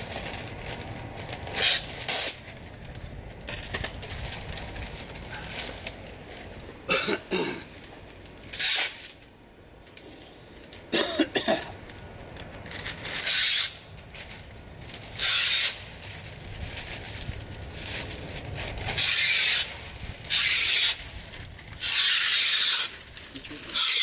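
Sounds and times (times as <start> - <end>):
man coughing: 6.9 - 7.7, 11.0 - 11.8
short hissing bursts: 15.2 - 15.9.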